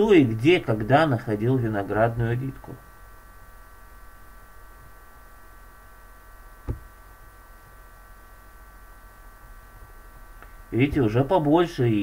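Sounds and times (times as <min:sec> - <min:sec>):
electrical hum: 0:00.0 - 0:12.0
faint high whine: 0:00.0 - 0:12.0
short thump: 0:06.6 - 0:07.0.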